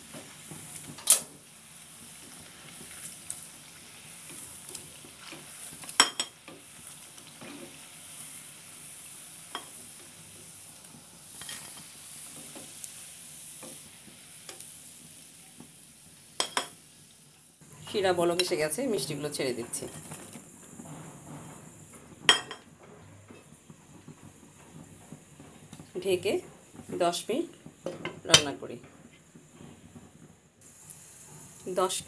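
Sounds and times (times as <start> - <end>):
food sizzling in hot oil: 0.0 - 32.0.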